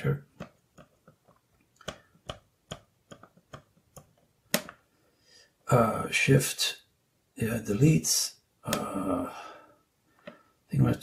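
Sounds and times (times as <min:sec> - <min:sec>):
fingertips tapping keyboard keys: 0:00.3 - 0:04.8.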